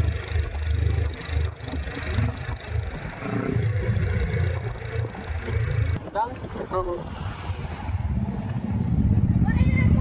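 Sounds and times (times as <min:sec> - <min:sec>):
motorcycle engines running: 0:00.0 - 0:06.6
wind on microphone: 0:01.7 - 0:10.0.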